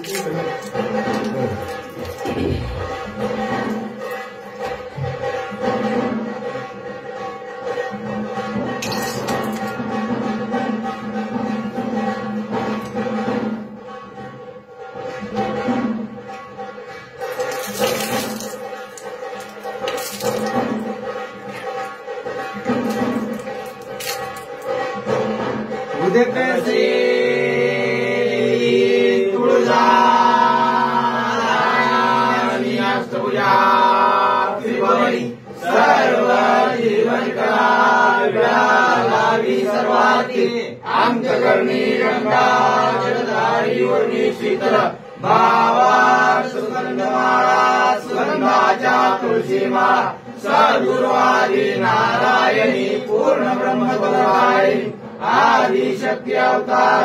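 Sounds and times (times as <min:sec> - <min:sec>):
men chanting together: 0:25.9 - 0:57.0.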